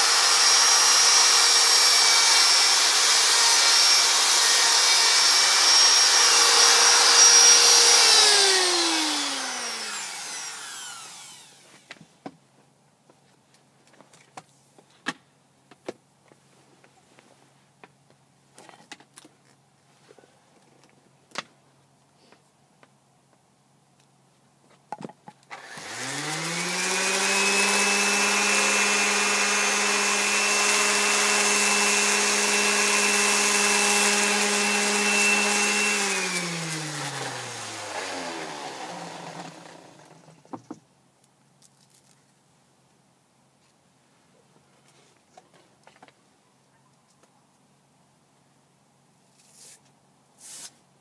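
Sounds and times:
electric sander whining: 0.0 - 11.9, 25.6 - 40.4.

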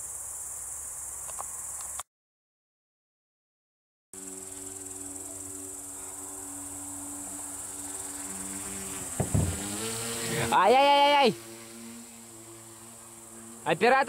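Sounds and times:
crickets trilling: 0.0 - 2.0, 4.2 - 14.0
propeller motors humming: 4.2 - 14.0.

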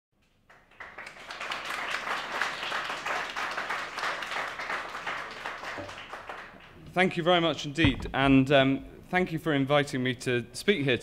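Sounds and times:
audience applauding: 0.5 - 6.8.

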